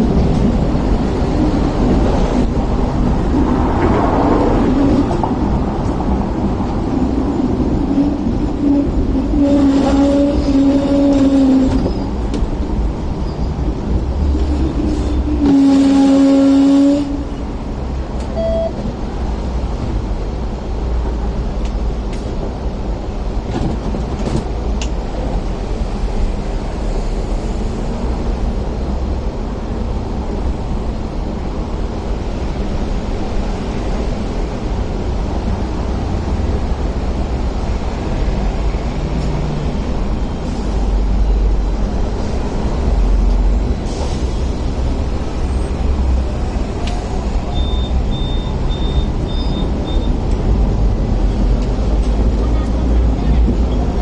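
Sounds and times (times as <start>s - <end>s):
tram rumbling: 0.0s - 54.0s
loud horn-like note: 15.4s - 17.3s
short electronic beep: 18.3s - 18.8s, 47.5s - 50.1s.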